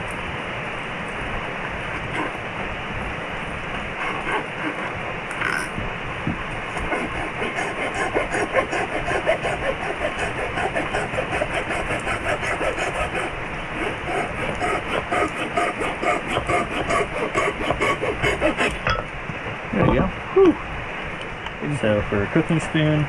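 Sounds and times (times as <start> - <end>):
hand saw cutting wood: 4.0 - 4.9, 6.7 - 18.8.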